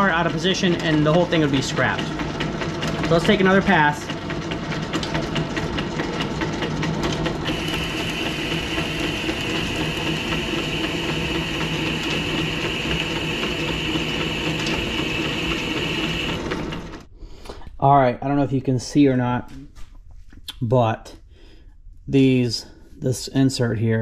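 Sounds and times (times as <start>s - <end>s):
high machine whine: 0.0s - 17.1s
lathe machine hum: 0.0s - 17.1s.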